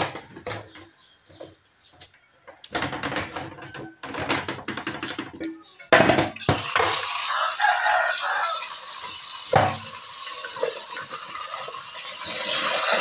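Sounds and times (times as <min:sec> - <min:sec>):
tap water running into pot: 0:06.4 - 0:13.0
pot knocking against sink: 0:09.5 - 0:09.9.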